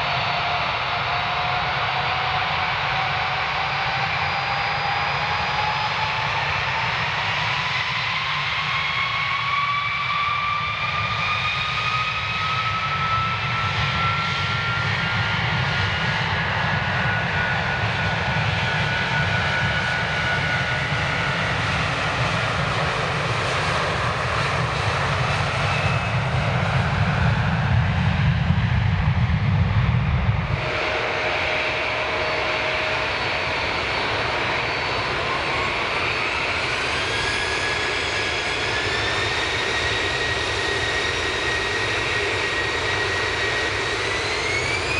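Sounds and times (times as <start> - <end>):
jet engines roaring at takeoff: 0.0 - 44.9
turbofan high whine: 0.0 - 44.9.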